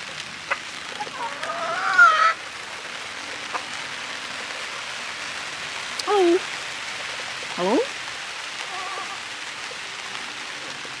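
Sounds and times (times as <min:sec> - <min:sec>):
rain falling: 0:00.0 - 0:11.0
chicken calling: 0:00.5 - 0:02.4, 0:08.6 - 0:09.3.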